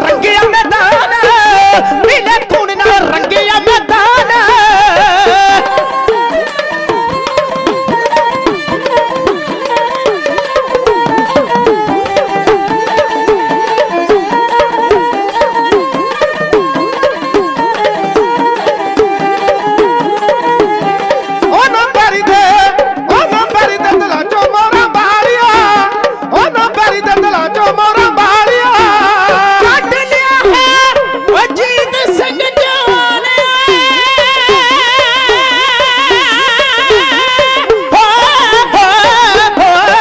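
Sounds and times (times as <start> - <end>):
fast hourglass drum beats: 0.0 - 40.0.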